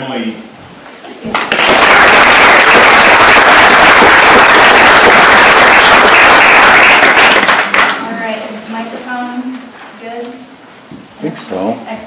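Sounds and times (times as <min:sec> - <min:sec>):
audience applauding: 0:01.3 - 0:08.1.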